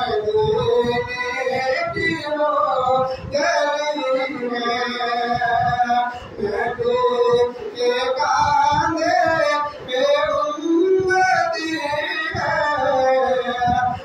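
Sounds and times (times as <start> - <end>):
man singing unaccompanied: 0.0 - 14.0
singer breathing: 6.1 - 6.4.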